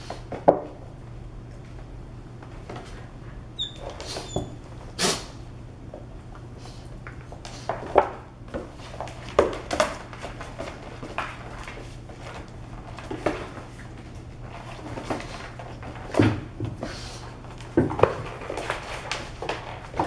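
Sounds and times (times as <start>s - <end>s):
paws clicking on hard floor: 5.9s - 20.0s.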